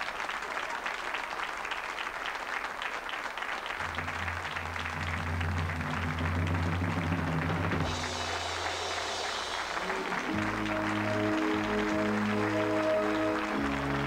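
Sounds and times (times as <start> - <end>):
audience applauding: 0.0 - 14.0
music with low sustained notes: 3.8 - 14.0.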